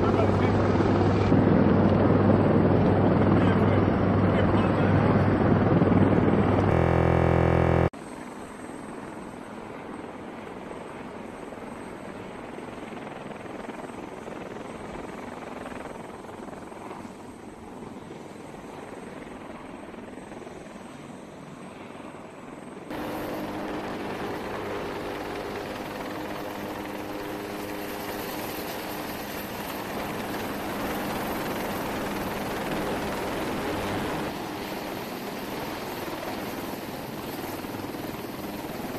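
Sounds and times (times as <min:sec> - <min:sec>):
helicopter rotor and engine: 0:00.0 - 0:38.9
loud rough noise: 0:06.6 - 0:07.9.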